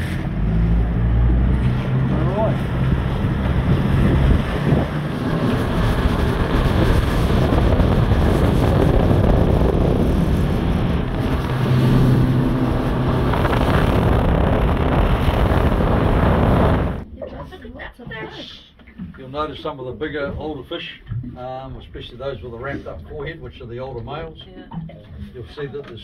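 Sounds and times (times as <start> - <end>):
boat engine running: 0.0 - 17.1
wind buffeting microphone: 0.3 - 17.1.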